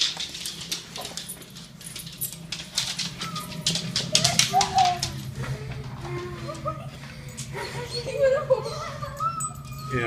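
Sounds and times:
rustling and clicking from handling: 0.0 - 7.5.

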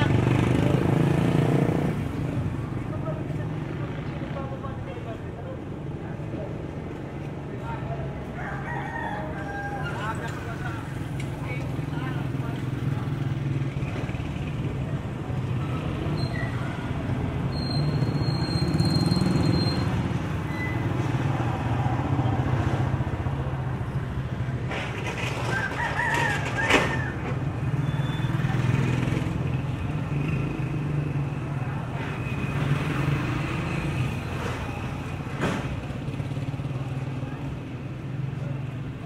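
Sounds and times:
motorbike engines passing: 0.0 - 39.0
rooster crowing: 8.3 - 10.2, 25.5 - 27.4.

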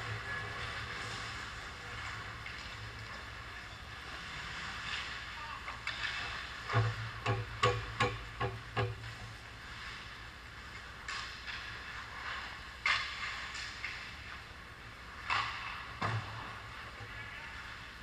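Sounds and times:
hockey sticks and puck clacking: 4.9 - 9.2, 10.7 - 14.4, 15.1 - 16.6.

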